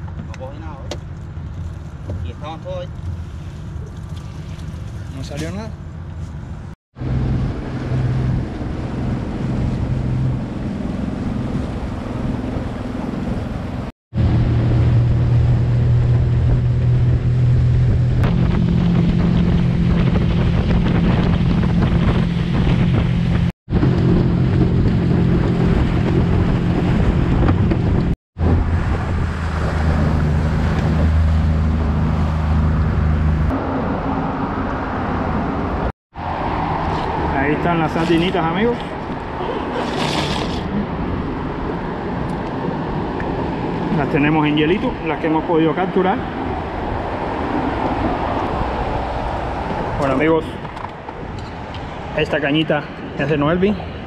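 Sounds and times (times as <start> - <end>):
water rushing past hull: 7.0 - 34.4
wind on microphone: 7.0 - 44.2, 46.2 - 52.2.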